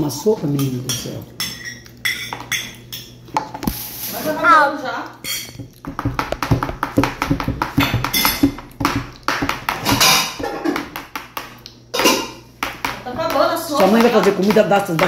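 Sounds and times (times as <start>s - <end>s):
metal spoon tapping a plastic plate: 5.6s - 11.5s, 12.6s - 15.0s.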